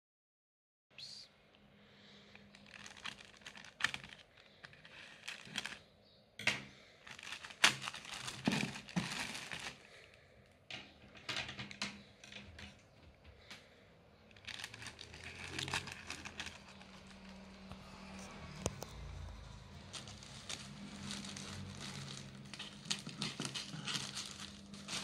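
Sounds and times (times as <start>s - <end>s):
plastic bag crinkling: 2.2s - 5.9s, 7.0s - 10.1s, 14.3s - 25.0s.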